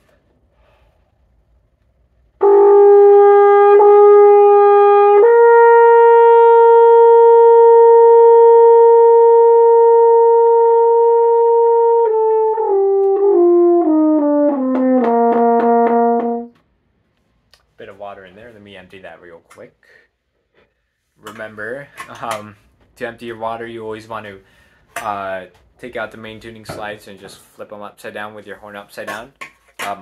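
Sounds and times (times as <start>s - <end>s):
rattling buzz in horn tone: 2.4s - 13.4s
french horn notes: 2.4s - 16.6s.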